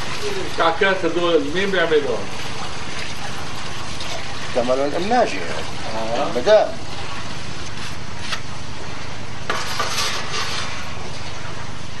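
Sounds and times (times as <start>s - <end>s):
tray scraping: 9.5s - 10.8s.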